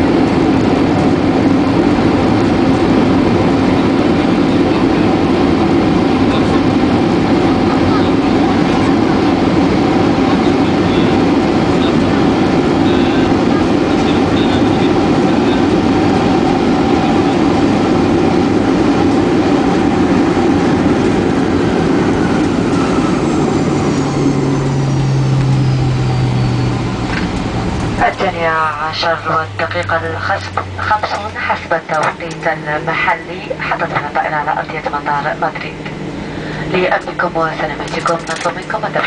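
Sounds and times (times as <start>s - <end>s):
airliner engine and wheel rush: 0.0s - 39.0s
faint high whine: 22.3s - 37.8s.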